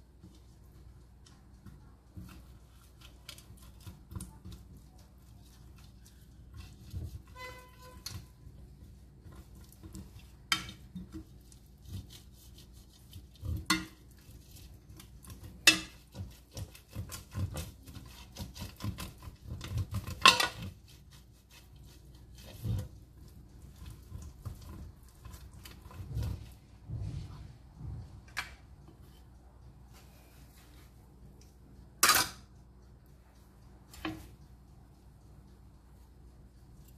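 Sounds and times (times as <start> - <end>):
brush rubbing metal pan: 2.2 - 27.6.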